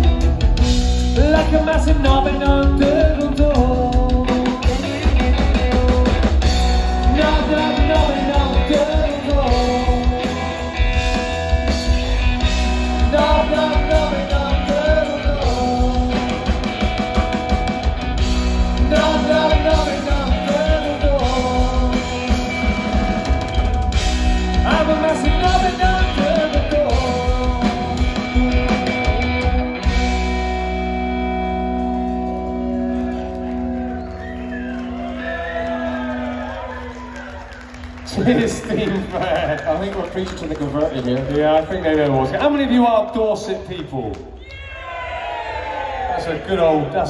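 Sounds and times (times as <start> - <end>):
drum kit beat: 0.0 - 32.8
electric guitar: 0.0 - 41.4
man singing: 1.0 - 11.2, 12.9 - 16.9, 18.7 - 23.0, 24.4 - 29.2.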